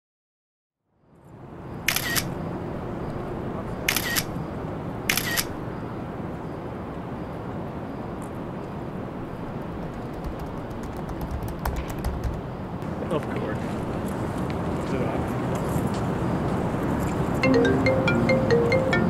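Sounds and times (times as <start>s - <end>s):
steady background noise: 0.9s - 19.0s
camera shutter sound: 1.9s - 2.3s, 3.9s - 4.3s, 5.1s - 5.6s.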